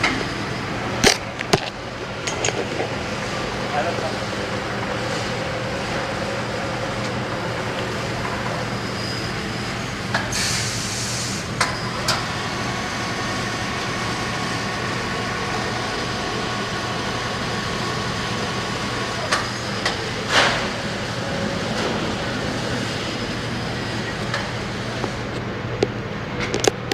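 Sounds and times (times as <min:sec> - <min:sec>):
machinery mechanical hum: 0:00.0 - 0:26.9
short hiss: 0:10.3 - 0:11.4.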